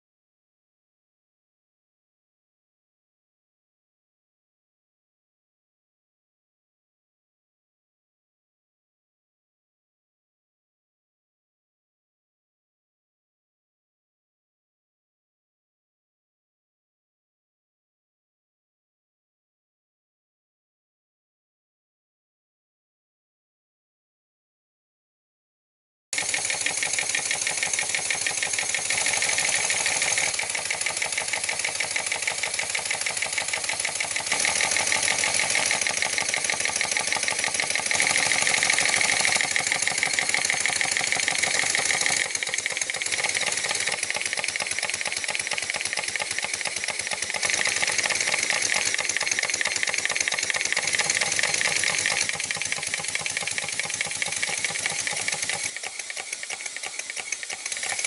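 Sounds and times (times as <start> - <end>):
model steam engine clattering: 26.2 - 58.0.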